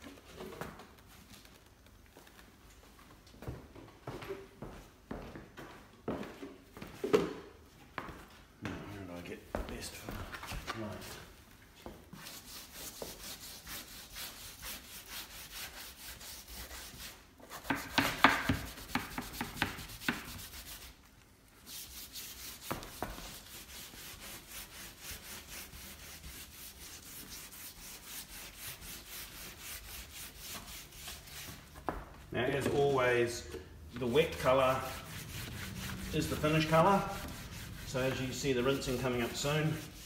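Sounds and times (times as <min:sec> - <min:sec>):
scrub brush scrubbing wet wood: 0:21.6 - 0:31.9, 0:34.0 - 0:40.0.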